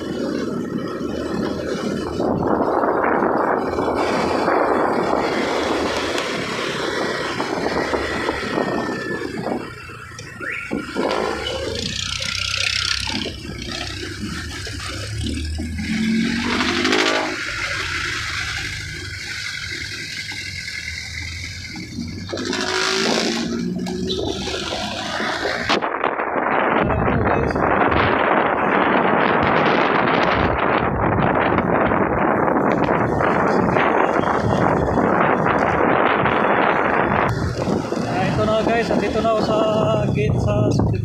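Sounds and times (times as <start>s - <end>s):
engine revving: 10.4s - 25.8s.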